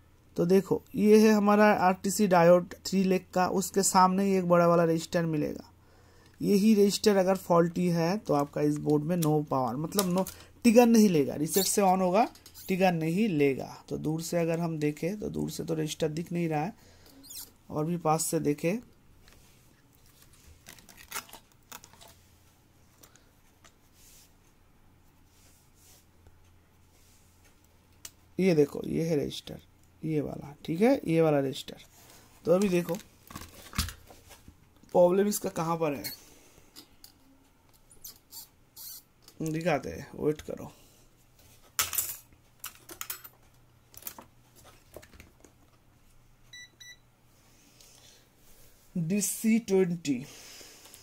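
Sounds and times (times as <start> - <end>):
meter electronic beep: 46.5 - 47.0.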